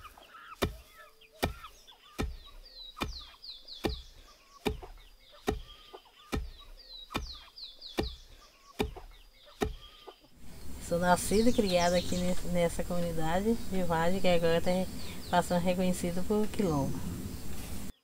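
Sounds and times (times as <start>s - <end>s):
birds chirping: 0.0s - 18.0s
wooden pestle pounding rice: 4.6s - 5.7s, 6.3s - 8.2s.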